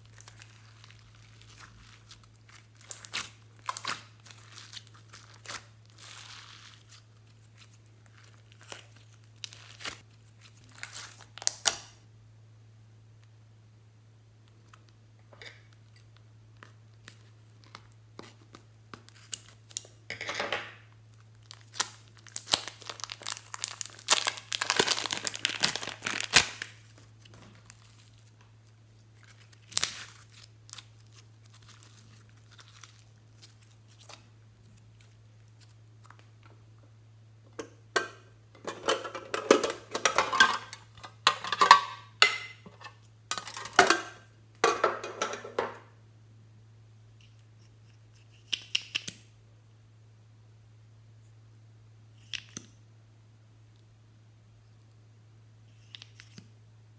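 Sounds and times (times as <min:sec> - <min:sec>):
plastic bag crinkling: 0:00.0 - 0:11.6, 0:21.2 - 0:35.7
slime squelching: 0:00.0 - 0:11.7, 0:21.6 - 0:36.4.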